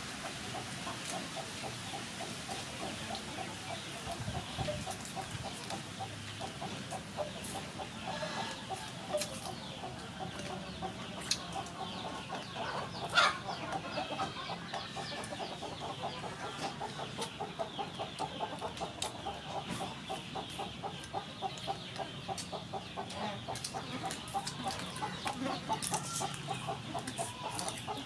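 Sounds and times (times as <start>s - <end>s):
chickens clucking: 0.0s - 28.0s.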